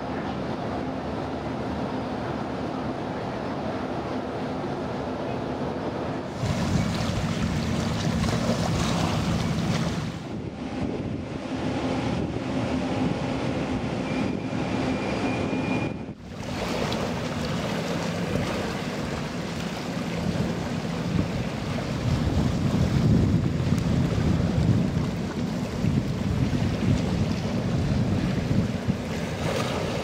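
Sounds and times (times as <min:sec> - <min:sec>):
waves splashing: 0:00.0 - 0:15.3, 0:16.1 - 0:30.0
low engine hum: 0:00.0 - 0:30.0
wind rushing over microphone: 0:06.3 - 0:19.4, 0:20.1 - 0:30.0.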